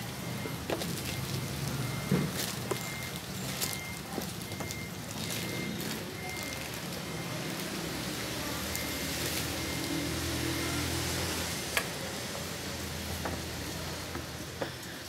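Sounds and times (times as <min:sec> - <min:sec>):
plastic wrapping crinkling: 0:00.5 - 0:08.1, 0:08.7 - 0:10.0.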